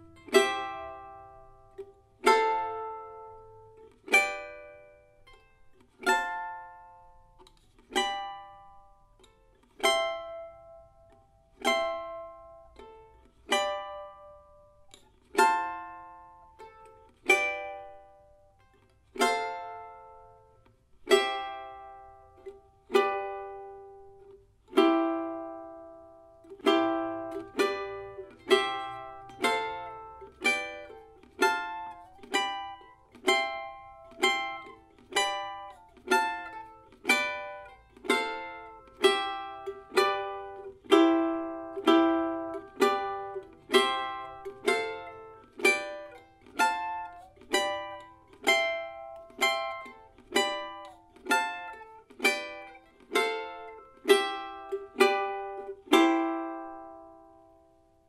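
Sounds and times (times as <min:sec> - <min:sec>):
plucked charango chords: 0:00.0 - 0:58.0.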